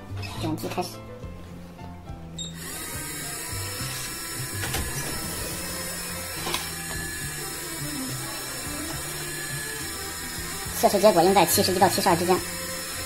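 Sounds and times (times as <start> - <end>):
small lift motor running: 2.6 - 13.0.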